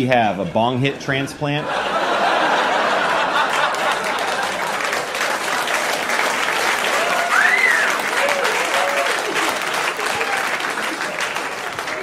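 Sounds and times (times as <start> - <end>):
audience applauding: 2.5 - 12.0
person whooping: 6.9 - 9.4.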